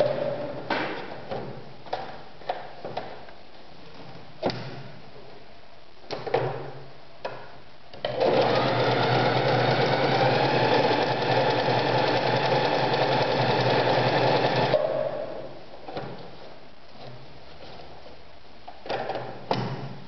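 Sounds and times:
sewing machine stitching: 8.0s - 14.8s.

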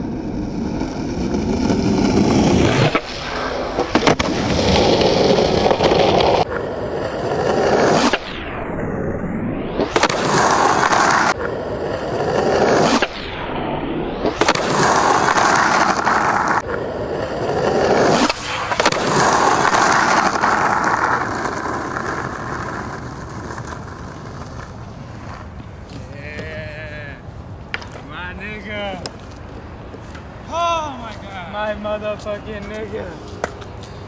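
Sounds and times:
skateboard wheels rolling on asphalt: 0.0s - 34.0s
skateboard clacks: 14.4s - 26.7s, 27.7s - 28.1s.

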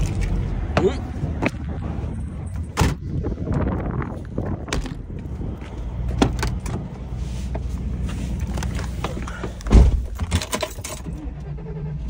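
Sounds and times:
engine humming: 0.0s - 12.0s
truck door shutting: 4.6s - 5.2s, 8.4s - 11.1s.

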